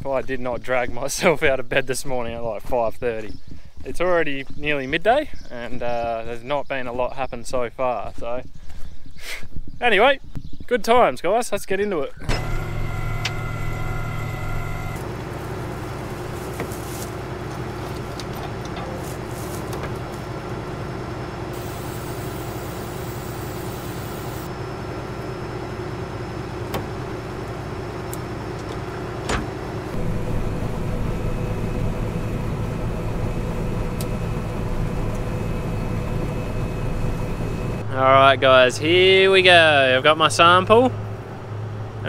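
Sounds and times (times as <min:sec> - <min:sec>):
combine harvester engine drone: 0:12.2 - 0:42.0.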